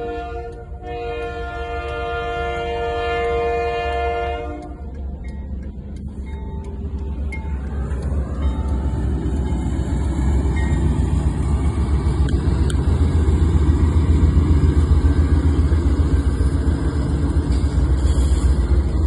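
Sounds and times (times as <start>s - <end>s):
diesel locomotive engine rumble: 0.0s - 19.0s.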